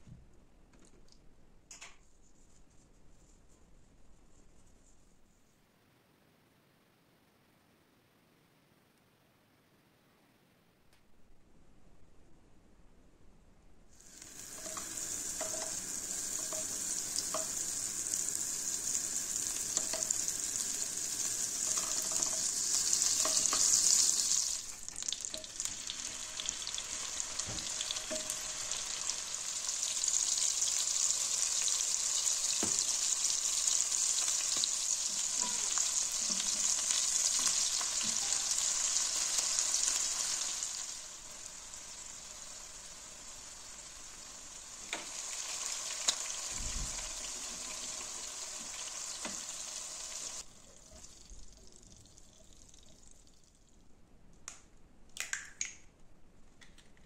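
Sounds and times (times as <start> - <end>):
chicken frying in butter: 14.0 - 53.6.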